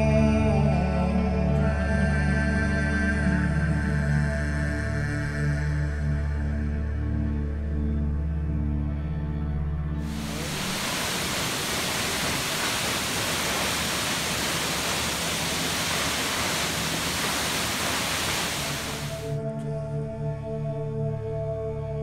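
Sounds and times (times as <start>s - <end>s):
music: 0.0s - 10.1s, 19.2s - 22.0s
waterfall rushing onto rock: 10.1s - 19.4s.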